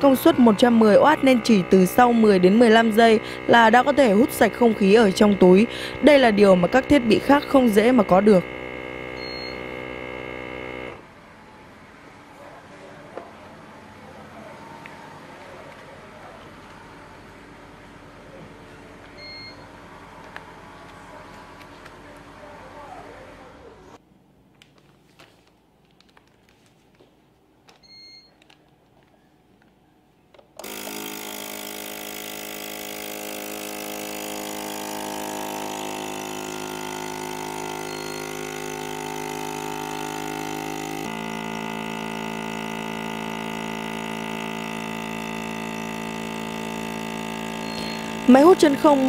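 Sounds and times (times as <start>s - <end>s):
vacuum sealer pump motor: 0.0s - 11.1s, 30.6s - 49.0s
short high beep: 9.2s - 9.7s, 19.2s - 19.6s, 37.8s - 38.3s, 47.6s - 48.1s.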